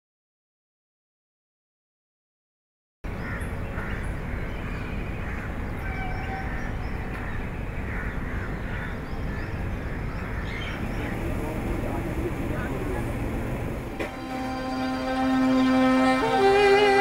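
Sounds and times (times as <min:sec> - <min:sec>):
crows cawing: 0:03.1 - 0:11.3
low background rumble: 0:03.1 - 0:15.4.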